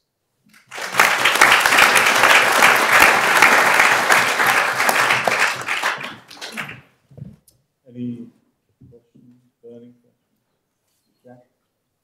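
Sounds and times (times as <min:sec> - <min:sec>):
audience applauding: 0:00.5 - 0:06.9.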